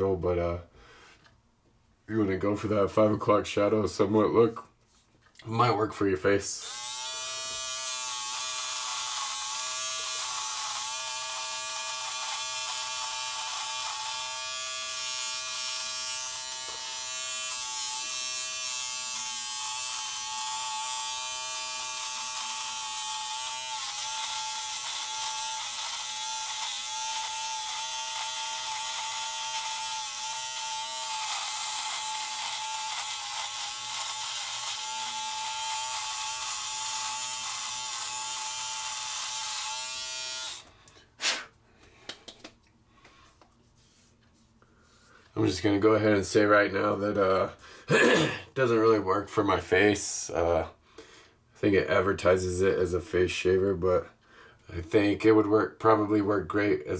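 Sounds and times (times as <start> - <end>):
electric shaver buzzing: 6.6 - 41.4.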